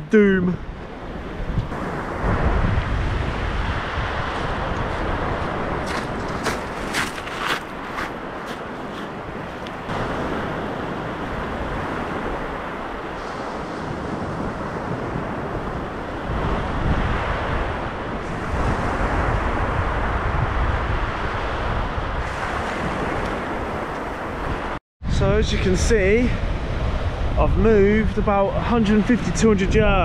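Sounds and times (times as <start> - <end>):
wind buffeting microphone: 0.0 - 30.0
waves breaking on pebbles: 5.1 - 9.2.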